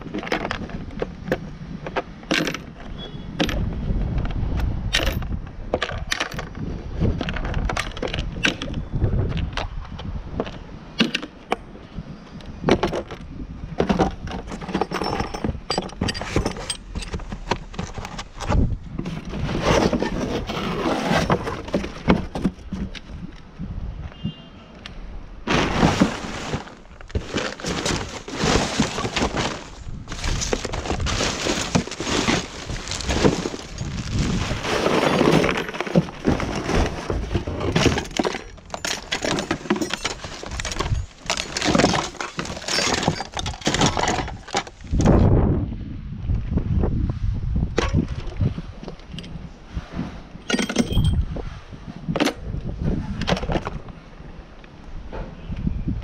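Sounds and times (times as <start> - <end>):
hard objects clattering and clinking: 13.8 - 20.3, 25.5 - 44.8, 50.5 - 51.2.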